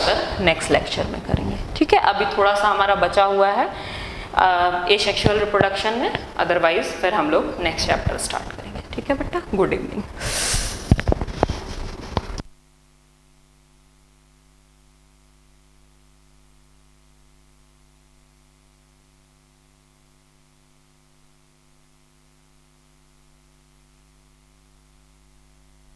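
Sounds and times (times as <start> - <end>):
faint electrical mains hum: 0.0 - 25.9
person speaking: 4.4 - 11.0.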